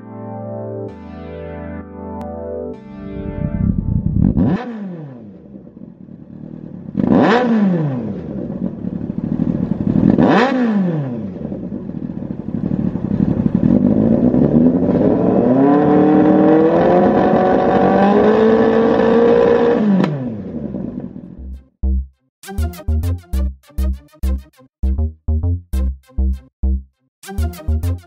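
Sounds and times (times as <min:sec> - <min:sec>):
motorcycle engine revving: 0:03.1 - 0:21.5.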